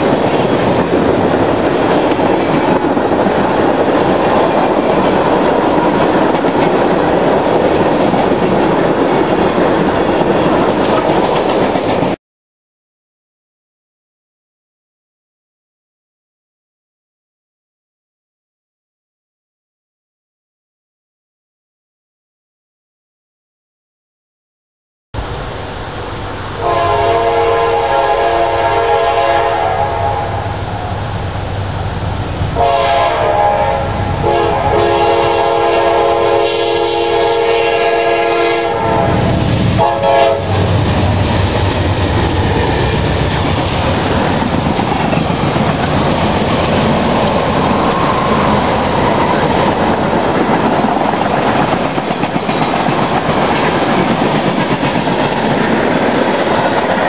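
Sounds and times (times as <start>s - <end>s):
train rumbling past: 0.0s - 12.2s, 25.2s - 57.0s
locomotive air horn blasts: 26.6s - 30.9s, 32.6s - 40.8s
wheels clattering over rail joints: 40.8s - 57.0s.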